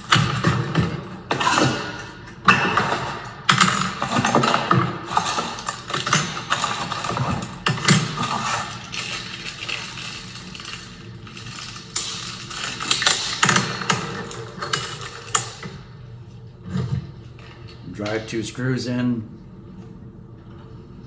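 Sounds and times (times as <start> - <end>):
metal parts clicking and clinking: 0.0 - 15.8.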